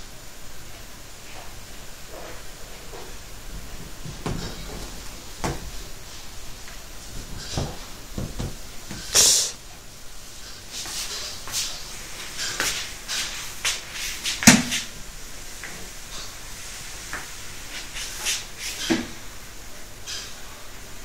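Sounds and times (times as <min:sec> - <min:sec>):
loud hiss-like rush: 0:00.0 - 0:21.0
cat scrambling on sofa: 0:03.5 - 0:06.3
soft thumps and knocks: 0:03.6 - 0:05.9, 0:07.2 - 0:09.1.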